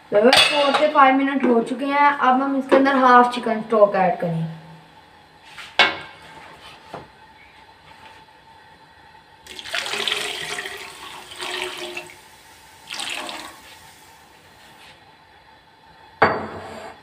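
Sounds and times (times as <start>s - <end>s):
stock pouring into a pot: 9.5s - 14.1s.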